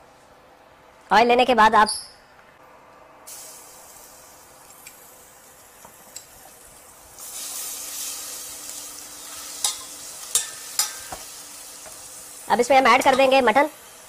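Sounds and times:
paste sizzling in hot oil: 3.3s - 12.6s
spatula tapping pan: 9.6s - 12.0s.

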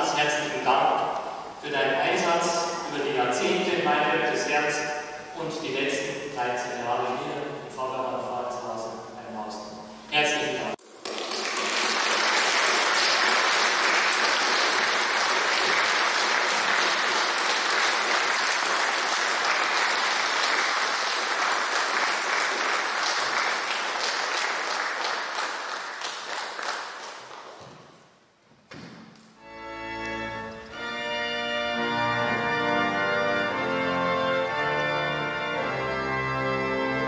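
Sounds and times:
congregation applauding: 10.8s - 28.0s.

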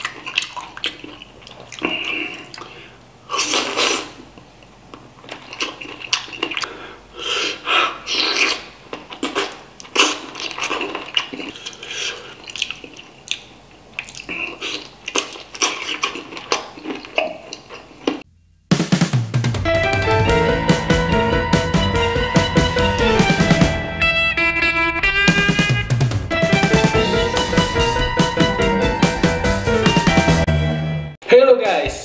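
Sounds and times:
wet sucking and chewing: 0.0s - 4.5s, 5.2s - 18.2s
noisy sniffs and breaths: 6.6s - 8.6s.

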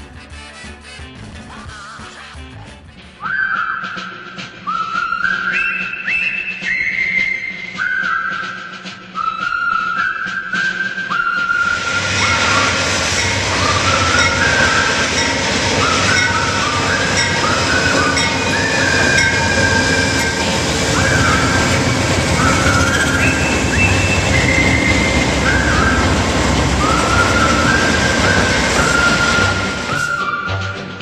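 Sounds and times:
wheel and brake squeals: 10.6s - 31.0s
train low rumble: 11.4s - 31.0s.

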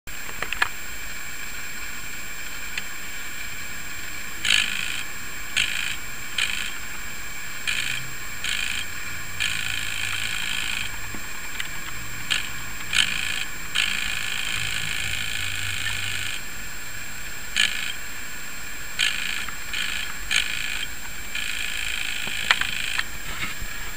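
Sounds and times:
steady hiss: 0.1s - 23.9s
clock gear train whirring: 2.4s - 23.9s.

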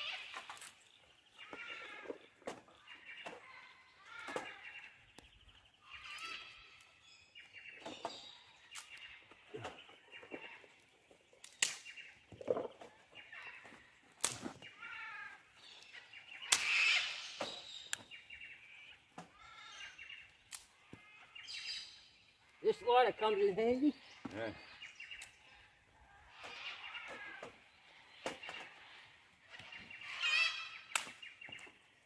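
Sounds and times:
birds calling: 0.0s - 32.0s
sticks clacking in metal fire pit: 11.4s - 12.0s, 14.2s - 14.5s.

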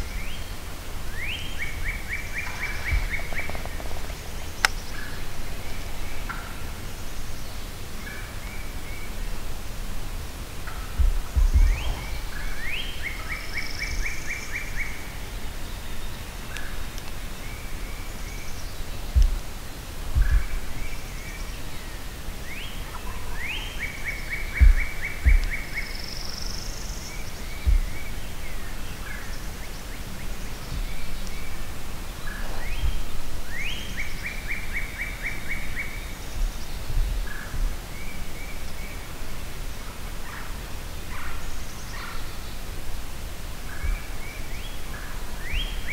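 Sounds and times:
bird song with trill: 0.0s - 45.9s
birds chirping: 0.0s - 45.9s
low thuds: 2.2s - 7.4s, 9.2s - 13.4s, 16.8s - 34.8s, 35.6s - 38.3s.

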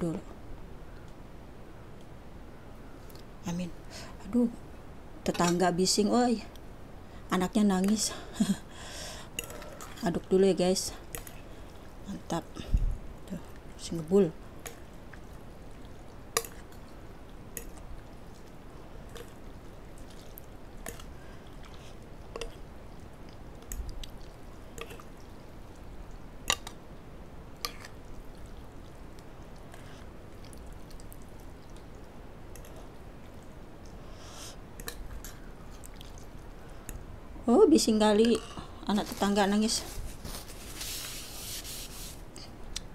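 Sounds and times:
soup dripping and sloshing: 14.5s - 37.1s.

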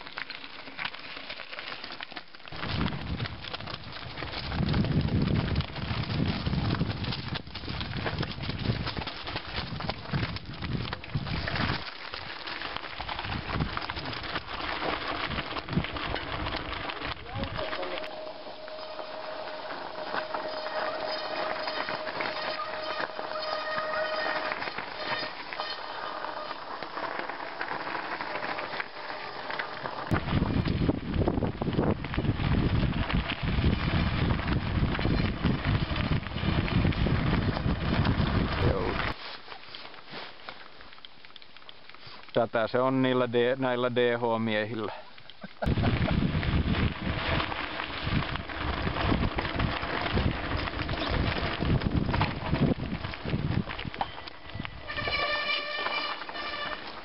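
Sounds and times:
bike tyres crunching over scree: 0.0s - 57.0s
wind buffeting microphone: 2.5s - 11.8s, 13.1s - 14.5s, 15.2s - 17.9s, 30.1s - 39.2s, 45.6s - 55.5s
brake squeal: 17.5s - 30.0s, 54.0s - 57.0s.

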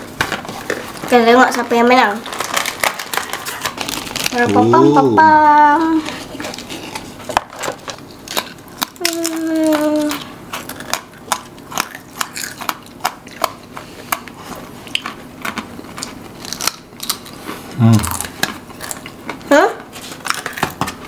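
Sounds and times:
crunchy biscuit sticks chewed: 2.2s - 4.7s, 6.3s - 21.0s.

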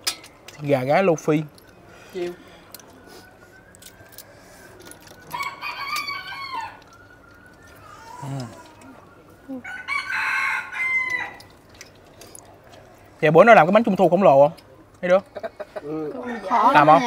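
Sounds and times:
rooster crowing: 5.2s - 11.6s.

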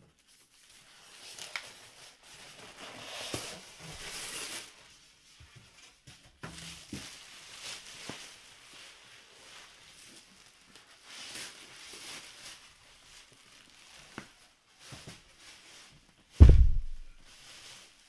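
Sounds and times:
plastic wrap crinkling: 6.8s - 18.0s
cardboard knocking: 16.4s - 17.2s.

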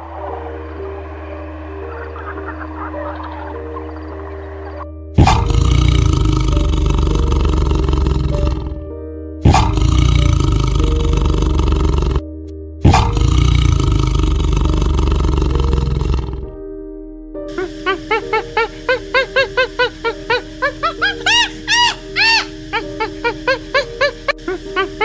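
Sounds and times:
soft background music: 0.0s - 25.0s
tiger roaring: 5.2s - 8.8s, 9.4s - 12.2s, 12.8s - 16.6s.

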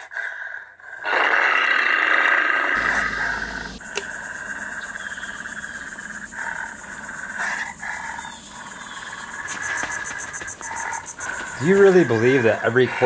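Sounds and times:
long loud growl: 1.0s - 3.8s
insects chirring: 1.0s - 13.0s.

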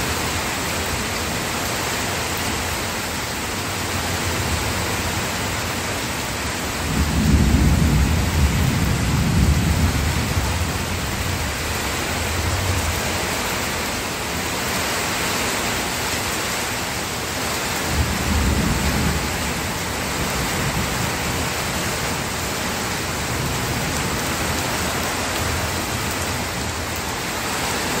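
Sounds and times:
steady rain: 0.0s - 28.0s
thunder rumbling: 6.8s - 13.0s, 17.9s - 28.0s.

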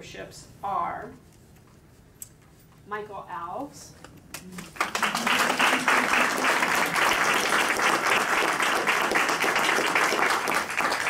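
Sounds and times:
audience applauding: 4.6s - 11.0s.

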